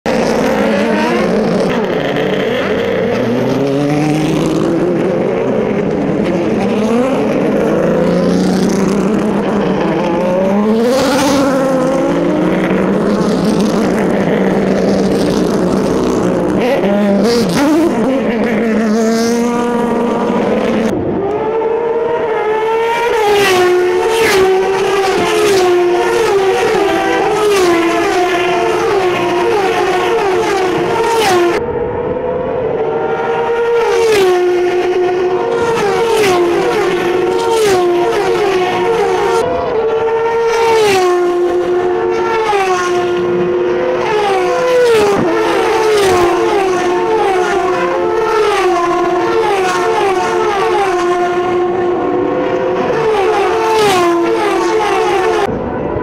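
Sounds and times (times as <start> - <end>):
race car engines revving: 0.0 - 56.0.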